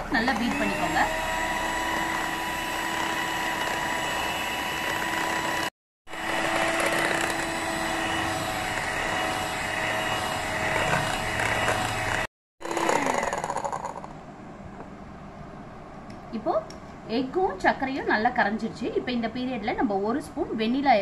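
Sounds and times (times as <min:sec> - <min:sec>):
electric hand mixer whirring: 0:00.0 - 0:14.0.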